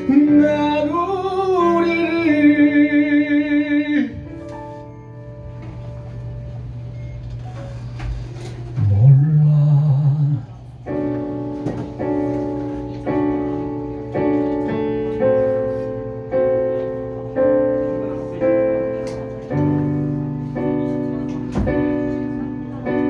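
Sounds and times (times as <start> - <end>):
piano playing repeated chords: 0.0 - 8.0, 8.6 - 23.0
held low note: 8.7 - 11.0.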